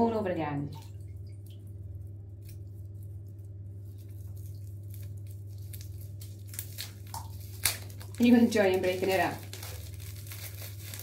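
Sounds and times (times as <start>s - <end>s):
low hum: 0.0s - 11.0s
bath water splashing: 0.6s - 11.0s.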